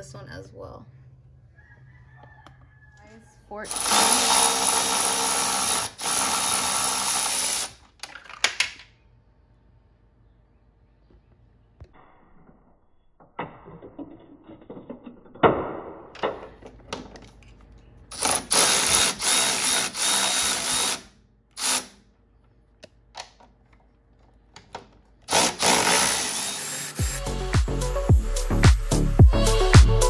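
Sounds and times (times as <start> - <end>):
power tool running: 3.6 - 7.8, 18.1 - 22.0, 25.3 - 27.8.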